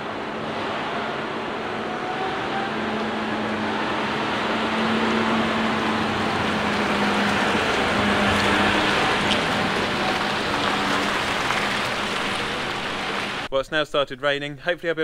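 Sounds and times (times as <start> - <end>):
tractor diesel engine passing: 0.0 - 13.5.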